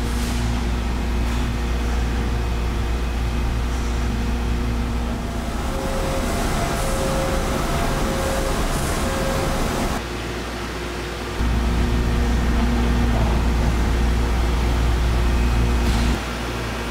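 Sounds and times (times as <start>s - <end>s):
factory hall hum: 0.0s - 16.9s
low rumbling background noise: 0.0s - 16.9s
steady machine tone: 1.1s - 10.0s.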